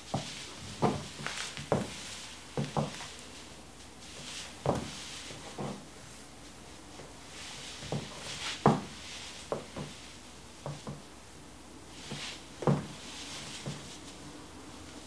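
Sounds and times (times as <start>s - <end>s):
high heels clicking on hard floor: 0.1s - 2.0s, 2.6s - 3.0s
clothing rustling: 0.1s - 11.0s, 11.9s - 14.3s.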